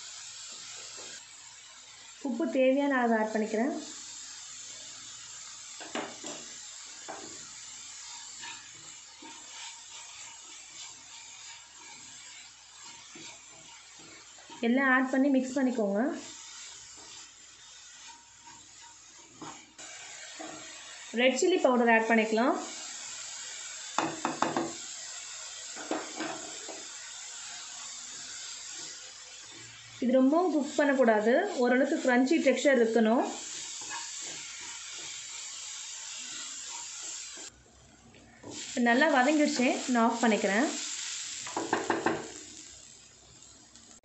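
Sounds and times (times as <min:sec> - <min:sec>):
frying hiss: 0:00.0 - 0:44.0
vegetables sizzling in a pan: 0:00.0 - 0:44.0
spatula knocking and scraping pan: 0:05.8 - 0:07.4, 0:08.3 - 0:14.6, 0:17.9 - 0:19.7, 0:24.0 - 0:24.8, 0:25.8 - 0:26.9, 0:33.5 - 0:35.4, 0:41.5 - 0:42.4
spatula scraping a pan: 0:05.8 - 0:14.7, 0:15.5 - 0:21.0, 0:23.6 - 0:32.6, 0:33.2 - 0:37.5
spatula knocking against pan: 0:24.0 - 0:24.7.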